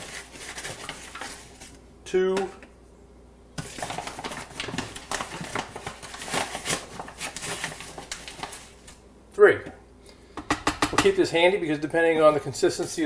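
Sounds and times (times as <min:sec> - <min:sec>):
paper flour bag rustling: 0:00.0 - 0:01.8, 0:03.6 - 0:09.0.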